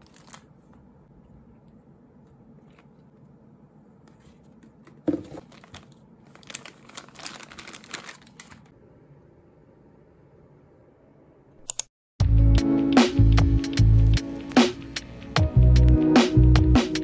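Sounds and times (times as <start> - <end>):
plastic snack bags crinkling: 0.0 - 0.5, 4.9 - 8.7.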